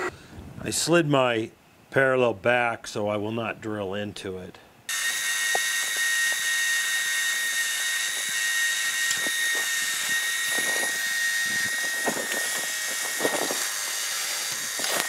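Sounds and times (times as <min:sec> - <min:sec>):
drill cutting crackles: 0:04.9 - 0:15.0
milling machine spindle whine: 0:04.9 - 0:15.0.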